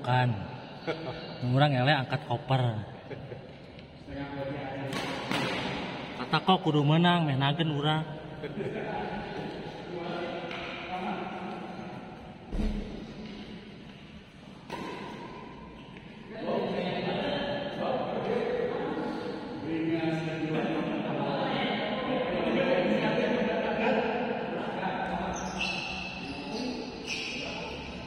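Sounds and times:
racket hitting shuttlecock: 0:04.9 - 0:06.0, 0:14.6 - 0:15.5
sneakers squeaking on court: 0:25.3 - 0:28.0.

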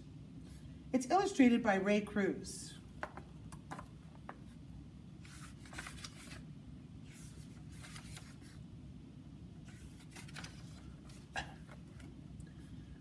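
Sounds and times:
book pages turning: 0:05.2 - 0:08.6, 0:09.6 - 0:12.2.

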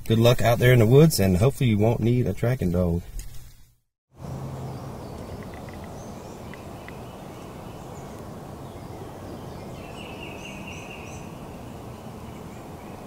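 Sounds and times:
birds chirping: 0:04.2 - 0:13.0
rapid warbling bird call: 0:04.6 - 0:13.0.

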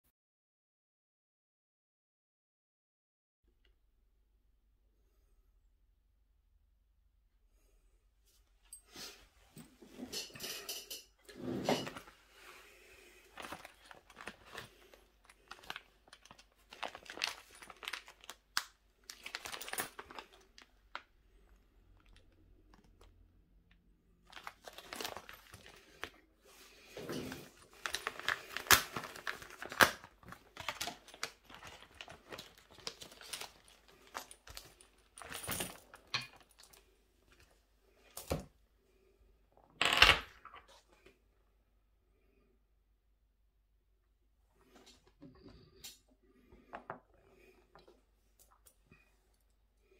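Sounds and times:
plastic bag crinkling: 0:13.2 - 0:23.1, 0:24.2 - 0:26.2, 0:27.0 - 0:36.8.

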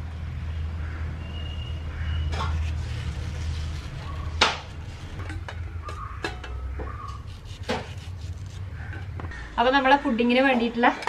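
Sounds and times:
knife slicing mango: 0:07.1 - 0:08.7.

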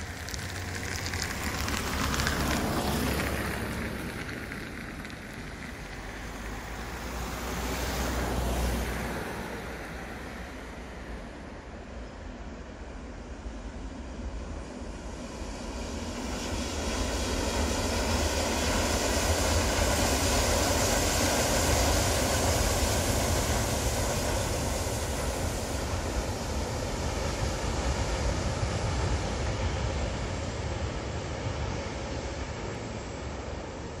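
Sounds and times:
freight train rumbling past: 0:07.4 - 0:34.0.

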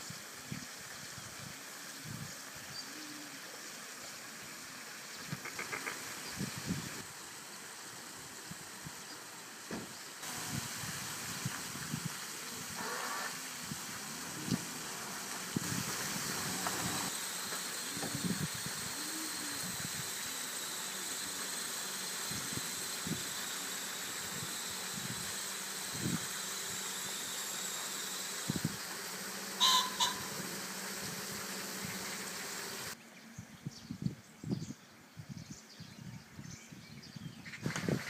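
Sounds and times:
outdoor hiss: 0:00.0 - 0:33.4
two-note bird chirp: 0:29.6 - 0:30.3.

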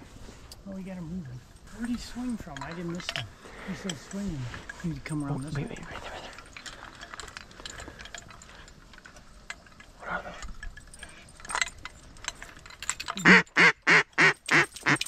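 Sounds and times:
duck quacking: 0:13.2 - 0:14.6.

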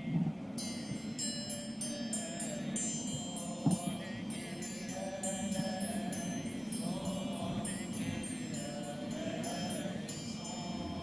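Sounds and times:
triangle ringing: 0:00.6 - 0:11.0
group chanting: 0:03.3 - 0:11.0.

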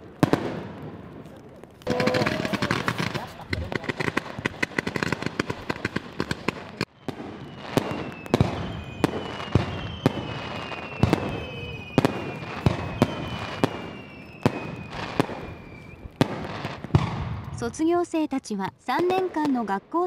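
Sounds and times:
firework shells bursting: 0:00.0 - 0:17.6
fireworks crackling: 0:00.0 - 0:20.0
firework whistles: 0:01.8 - 0:03.4, 0:06.5 - 0:17.3.

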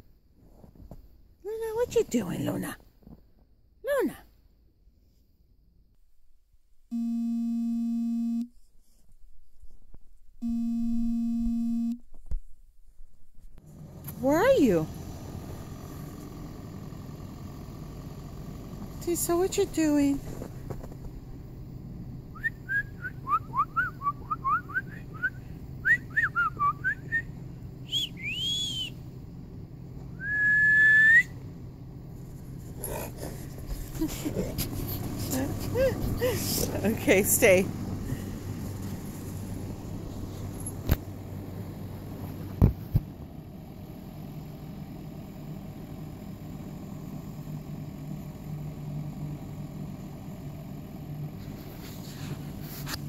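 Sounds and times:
long steady horn tones: 0:06.9 - 0:08.7, 0:10.4 - 0:12.0
person whistling: 0:22.4 - 0:27.3, 0:27.9 - 0:29.0, 0:30.2 - 0:31.4.

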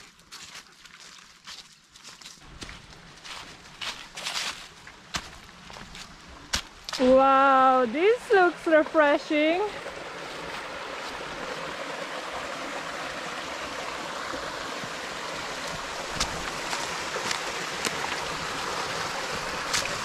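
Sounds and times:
small waterfall rushing: 0:06.9 - 0:20.0.

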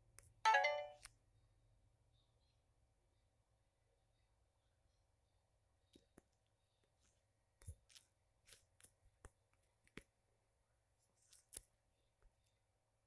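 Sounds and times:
fingers tapping a touchscreen: 0:00.5 - 0:01.1.

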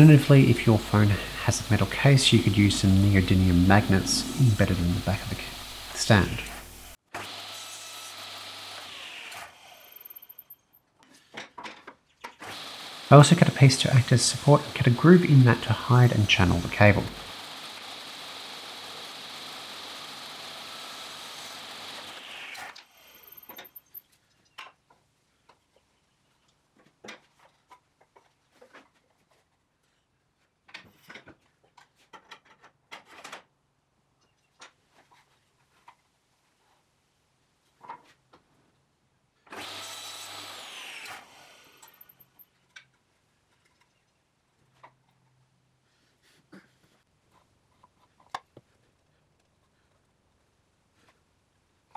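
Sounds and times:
table saw running: 0:00.0 - 0:10.1, 0:12.4 - 0:23.6, 0:39.6 - 0:42.0
saw winding down whine: 0:00.0 - 0:10.2, 0:12.5 - 0:23.5.

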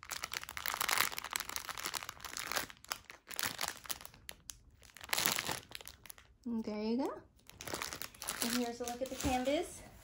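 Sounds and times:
plastic packets crinkling: 0:00.0 - 0:06.5, 0:07.4 - 0:09.8.

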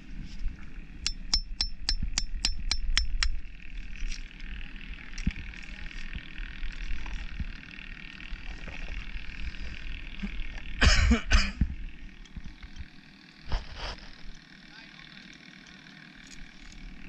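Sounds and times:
steady low rumble: 0:00.0 - 0:07.6
oyster shells knocking and scraping: 0:01.0 - 0:03.4.

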